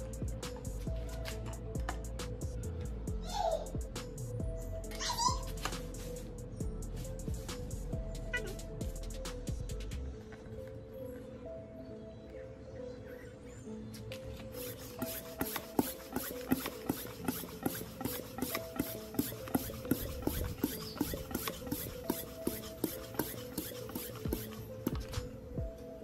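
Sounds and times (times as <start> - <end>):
faint background music: 0.0 - 26.0
bicycle floor pump strokes: 14.4 - 25.2.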